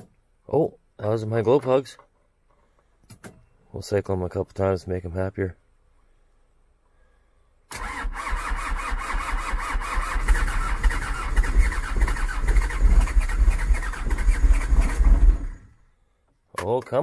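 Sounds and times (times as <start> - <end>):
diesel engine cranking: 7.7 - 15.8.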